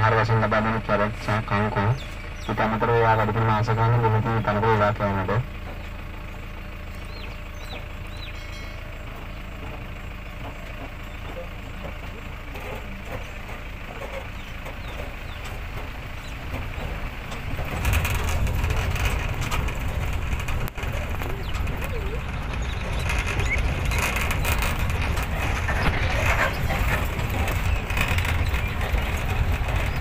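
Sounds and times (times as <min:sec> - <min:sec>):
low wind rumble on microphone: 0:14.4 - 0:30.0.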